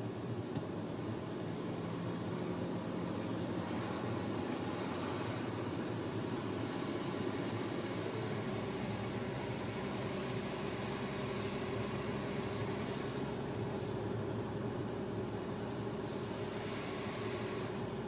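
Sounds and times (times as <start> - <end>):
car driving on wet road: 0.0 - 18.0.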